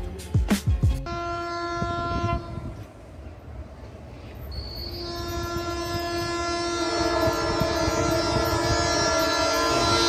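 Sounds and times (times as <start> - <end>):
train horn blast: 1.0 - 3.0, 4.5 - 10.0
train rumbling on track: 1.0 - 10.0.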